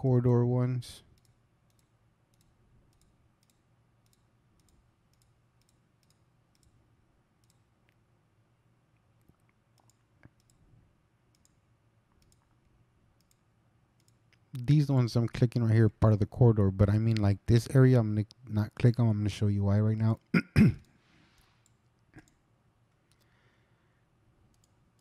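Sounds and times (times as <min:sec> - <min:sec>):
faint low hum: 0:00.0 - 0:25.0
computer mouse clicking: 0:01.2 - 0:06.8, 0:07.4 - 0:08.0, 0:09.2 - 0:10.6, 0:11.3 - 0:11.6, 0:12.2 - 0:12.6, 0:13.2 - 0:14.7, 0:23.0 - 0:23.3, 0:24.5 - 0:25.0.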